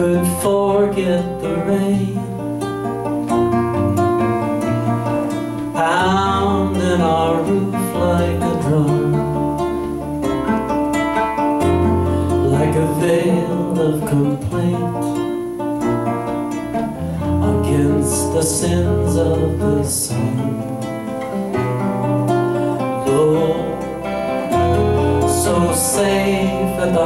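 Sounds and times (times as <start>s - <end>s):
man singing: 0.0s - 2.6s, 5.6s - 10.1s, 11.8s - 15.6s, 16.7s - 21.2s, 22.7s - 27.0s
acoustic band music: 0.0s - 27.0s.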